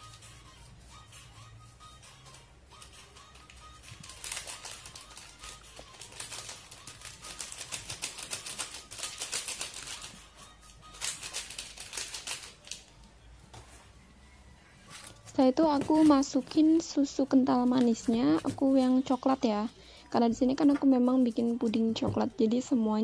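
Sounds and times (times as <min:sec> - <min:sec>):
foil sachet crinkling: 0:03.4 - 0:10.2, 0:10.9 - 0:12.9.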